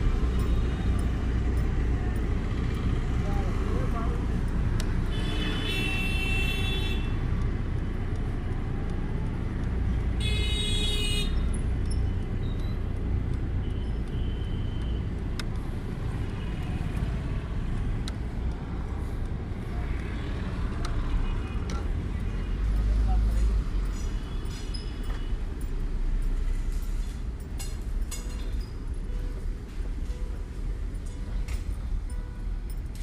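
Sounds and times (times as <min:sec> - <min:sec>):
low rumble of traffic: 0:00.0 - 0:33.0
vehicle horn honks: 0:05.1 - 0:07.1.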